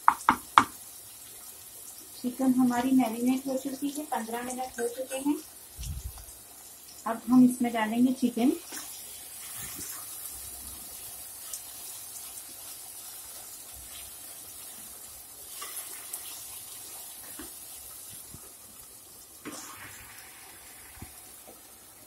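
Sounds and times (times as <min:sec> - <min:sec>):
masala sizzling in a pot: 0:00.0 - 0:22.0
wooden spatula stirring and scraping: 0:08.7 - 0:18.5.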